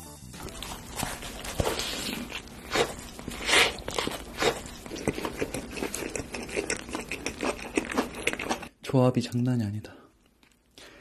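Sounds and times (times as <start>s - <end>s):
chewing with crisp crunches: 0.4s - 8.8s.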